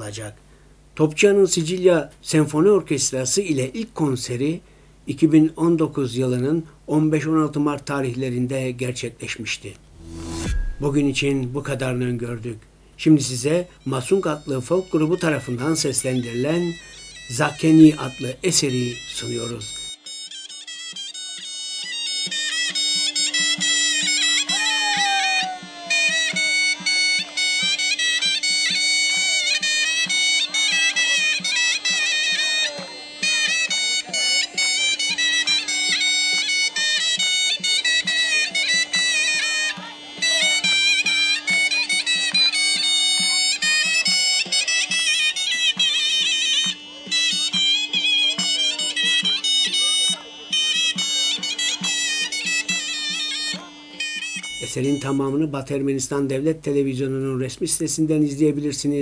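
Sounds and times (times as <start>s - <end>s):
low drum beat: 9.9s - 12.4s
wind instrument folk melody: 9.9s - 12.5s, 13.2s - 56.5s.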